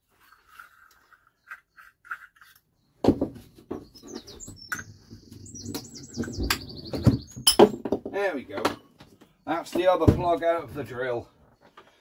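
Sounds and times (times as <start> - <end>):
clattering and scraping: 0.0 - 11.9
bird chirps: 0.2 - 7.8.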